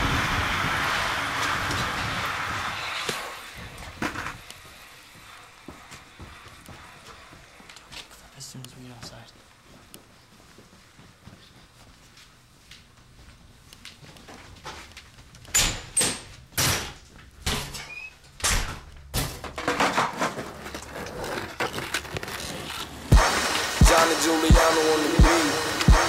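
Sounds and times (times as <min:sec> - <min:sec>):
steady rushing noise: 0:00.0 - 0:04.2, 0:23.1 - 0:26.0
brief squeak: 0:17.8 - 0:18.2.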